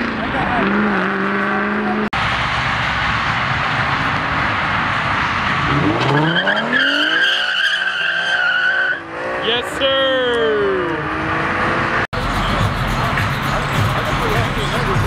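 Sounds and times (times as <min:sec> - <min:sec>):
tyres squealing: 0:06.0 - 0:09.0.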